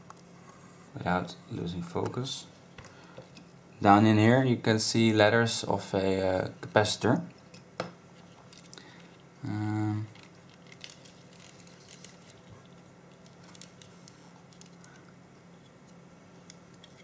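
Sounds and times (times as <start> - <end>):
man humming: 9.4 - 10.1.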